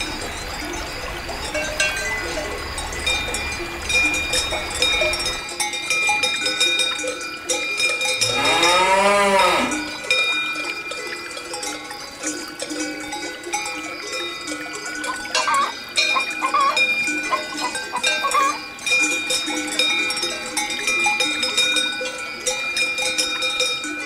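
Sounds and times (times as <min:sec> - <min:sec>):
cowbells clanking: 0:00.0 - 0:24.0
cow mooing: 0:08.2 - 0:09.9.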